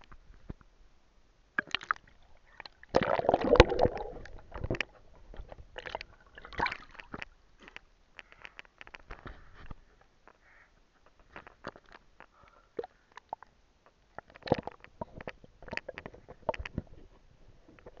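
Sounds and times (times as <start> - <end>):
water sloshing and splashing: 1.6 - 7.4.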